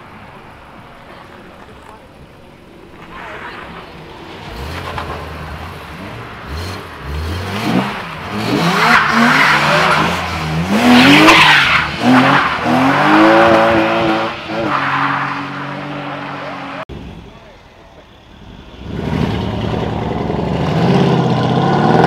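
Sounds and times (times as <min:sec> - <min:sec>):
car engine revving: 0:02.8 - 0:16.9.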